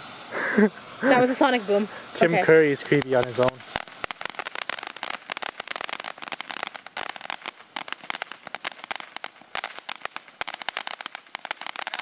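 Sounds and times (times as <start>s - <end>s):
firework hiss: 0.0s - 12.0s
firework pops: 2.8s - 12.0s.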